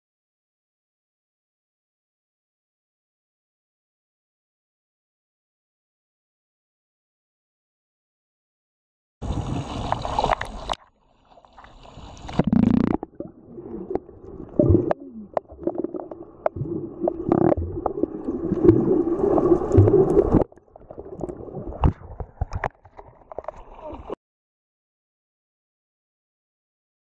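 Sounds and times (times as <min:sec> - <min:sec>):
underwater gurgling and bubbling: 0:09.2 - 0:10.8, 0:11.6 - 0:24.2
water splashing: 0:09.2 - 0:24.2.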